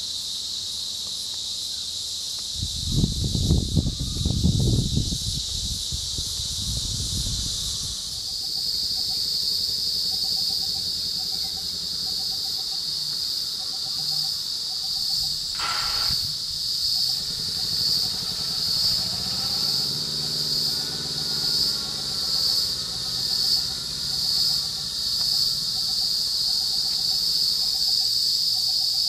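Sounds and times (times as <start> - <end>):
insect chorus buzzing: 0.0 - 29.0.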